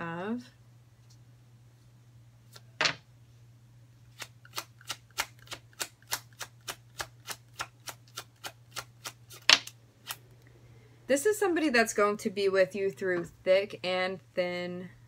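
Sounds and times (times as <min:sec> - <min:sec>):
cards being shuffled: 0:02.5 - 0:03.0, 0:04.2 - 0:10.2.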